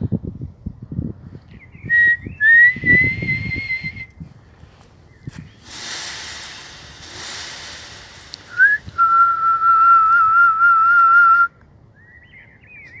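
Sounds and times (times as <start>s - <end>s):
woman whistling: 1.9s - 4.2s, 8.6s - 11.5s
rushing noise: 5.4s - 10.8s.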